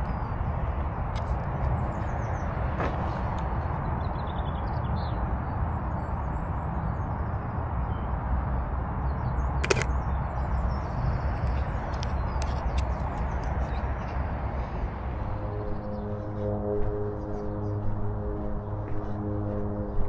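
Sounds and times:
camera shutter click: 0:09.6 - 0:09.9
low rumble: 0:13.9 - 0:20.0.

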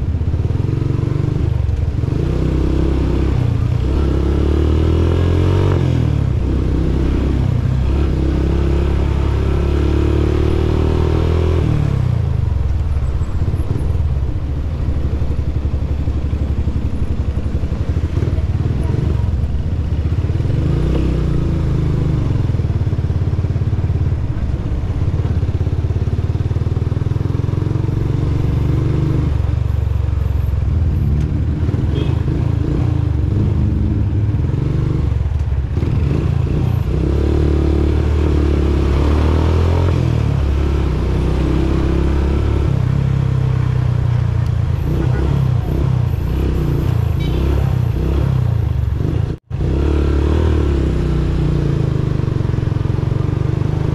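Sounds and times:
motorcycle engine running: 0:00.0 - 0:53.9.

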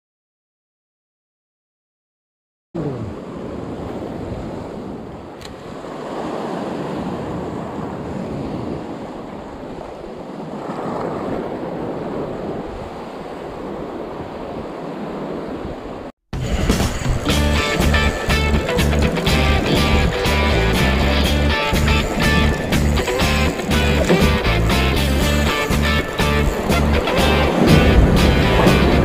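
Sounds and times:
surf on rocky shore: 0:02.8 - 0:29.0
wind blowing across microphone: 0:03.0 - 0:20.9.

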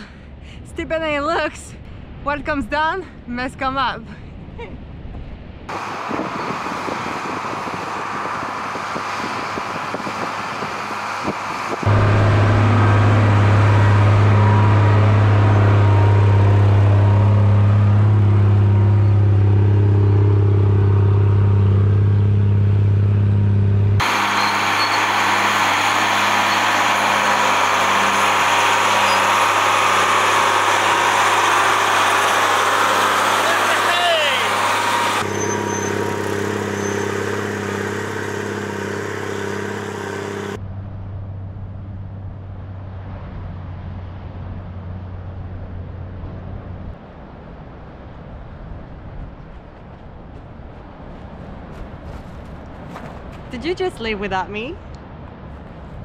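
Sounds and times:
diesel engine pulling under load: 0:05.7 - 0:46.9.

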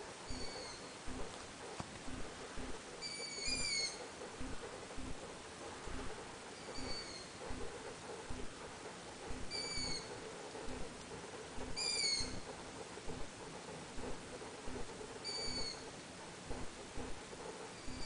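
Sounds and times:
bird calling high squeak: 0:00.3 - 0:00.9, 0:03.0 - 0:04.0, 0:06.6 - 0:07.3, 0:09.5 - 0:10.1, 0:11.8 - 0:12.4, 0:15.2 - 0:15.8.

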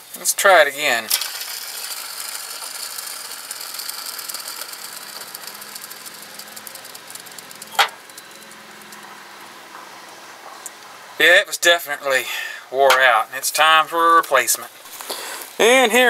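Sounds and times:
pulley bearing whirring and ticking: 0:01.1 - 0:09.6.

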